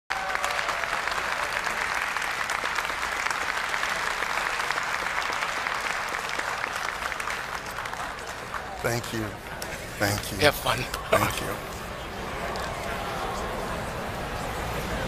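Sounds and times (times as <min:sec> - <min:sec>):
audience applauding: 0:00.1 - 0:11.5.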